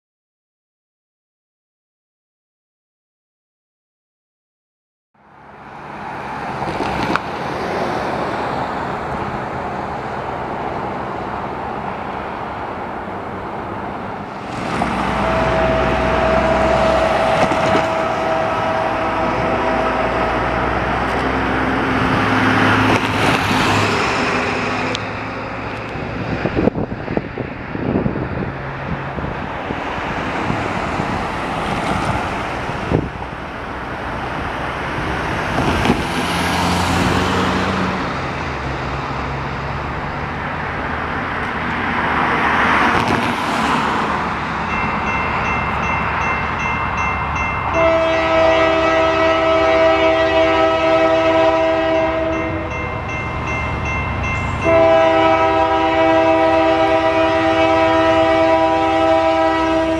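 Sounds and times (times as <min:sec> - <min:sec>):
locomotive engine drone: 0:05.2 - 0:59.9
steady horn tone: 0:15.0 - 0:21.5, 0:47.7 - 0:53.0, 0:54.6 - 0:59.9.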